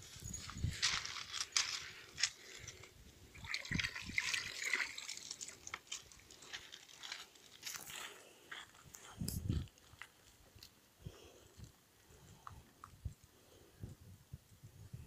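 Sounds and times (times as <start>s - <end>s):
water sloshing and splashing: 3.3s - 7.2s.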